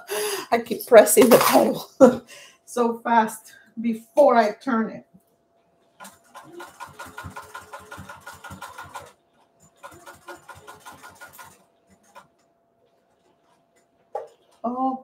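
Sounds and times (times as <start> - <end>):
sewing machine stitching: 5.9 - 14.6.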